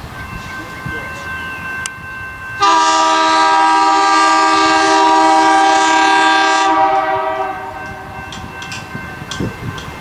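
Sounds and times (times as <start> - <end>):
train air horn chord: 2.6 - 8.2.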